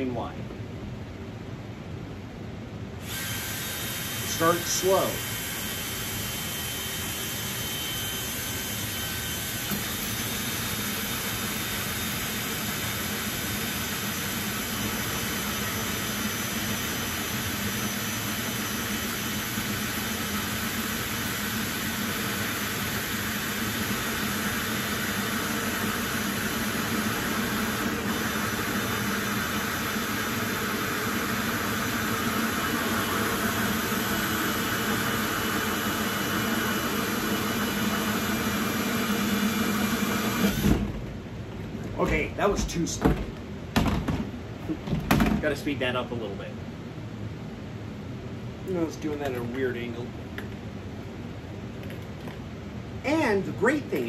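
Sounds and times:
drill hole saw cutting plastic: 3.0 - 40.8.

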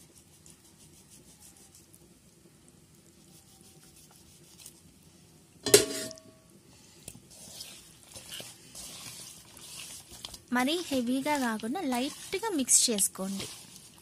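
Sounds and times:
soft handling of raw fish: 0.0 - 5.5, 6.6 - 14.0
sharp metallic clank: 5.6 - 6.4.

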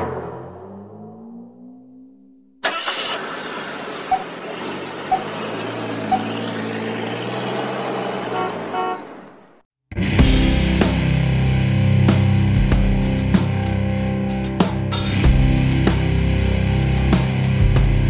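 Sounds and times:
car engine running: 2.6 - 9.6.

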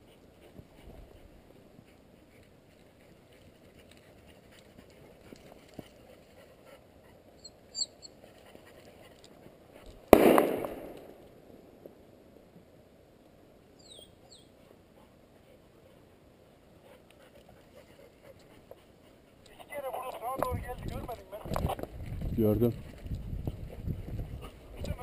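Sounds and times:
faint bird chirp: 7.4 - 8.2, 13.8 - 14.6
shotgun shot: 10.1 - 11.2.

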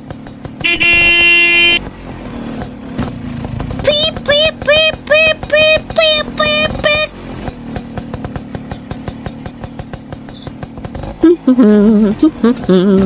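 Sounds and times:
toy scooter horn beeping: 0.6 - 1.8, 3.8 - 7.2.

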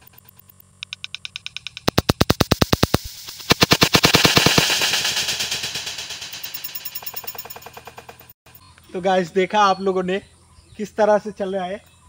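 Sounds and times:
pistol firing rapid cracks: 1.3 - 8.2
hiss: 2.6 - 7.2.

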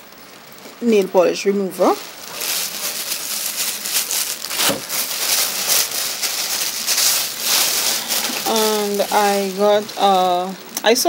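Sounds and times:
plastic bag rustling: 0.5 - 11.0.

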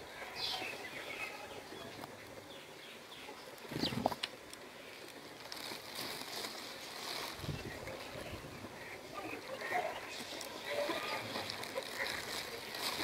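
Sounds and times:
sparrows chirping: 0.3 - 4.1.

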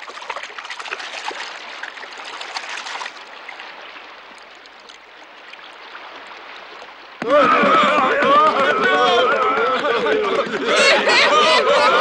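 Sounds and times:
running water trickling and splashing: 0.0 - 7.2.

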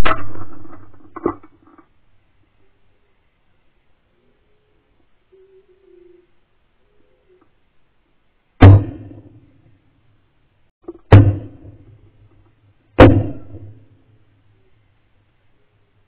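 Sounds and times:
shotgun shots: 8.6 - 9.2, 11.1 - 11.8, 13.0 - 13.8.

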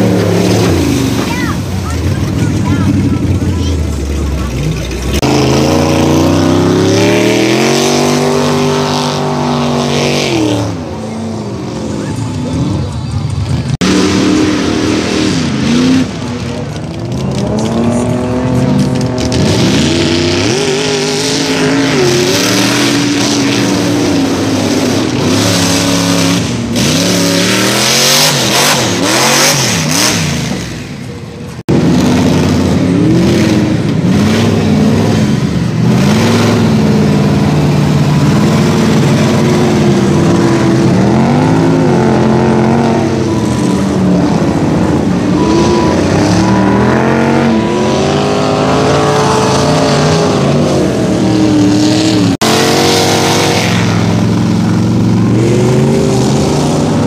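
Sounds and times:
engine revving hard: 4.8 - 10.8, 17.3 - 30.8, 31.6 - 57.0.

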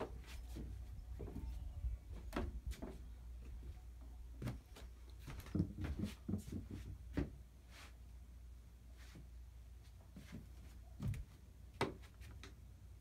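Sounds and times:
footsteps: 0.0 - 3.8, 4.4 - 7.9.

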